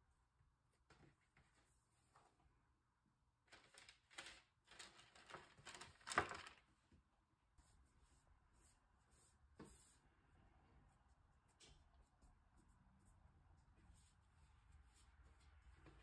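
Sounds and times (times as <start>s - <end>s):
parchment paper crinkling: 3.5s - 6.7s.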